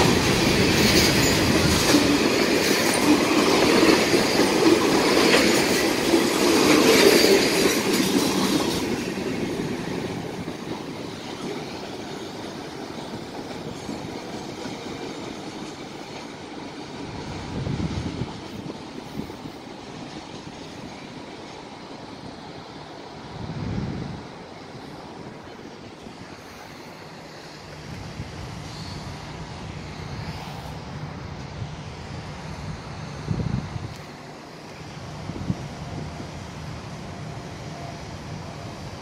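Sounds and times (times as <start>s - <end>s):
train wheels clacking: 0.0s - 22.9s.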